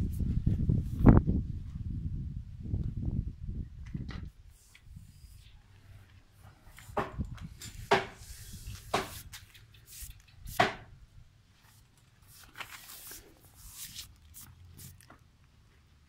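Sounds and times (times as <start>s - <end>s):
sharp knocks: 7.9s - 8.2s, 10.6s - 10.9s.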